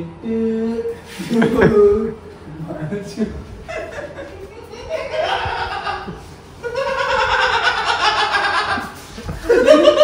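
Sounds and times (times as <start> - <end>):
young men laughing: 1.1 - 10.0.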